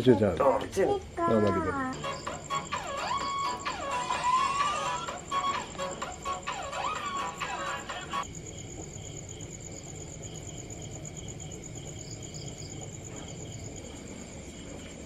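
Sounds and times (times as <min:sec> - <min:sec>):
crickets chirping: 0:00.0 - 0:15.0
background music: 0:01.9 - 0:08.2.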